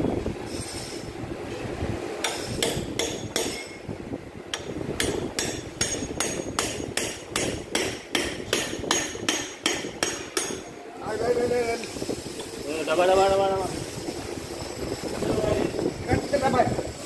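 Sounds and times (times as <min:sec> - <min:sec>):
hammer blows on metal: 0:02.2 - 0:03.9, 0:04.5 - 0:10.8.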